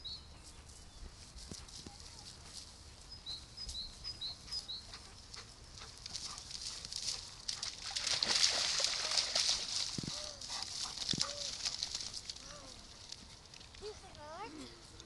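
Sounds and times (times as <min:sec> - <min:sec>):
bird chirping: 0:00.0 - 0:01.1, 0:03.1 - 0:05.1
dog splashing in water: 0:05.8 - 0:12.8.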